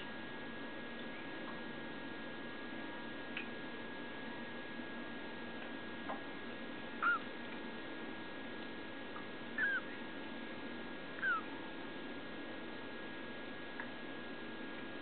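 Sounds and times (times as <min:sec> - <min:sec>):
kittens mewing: 0:07.0 - 0:07.3, 0:09.6 - 0:10.0, 0:11.2 - 0:11.5.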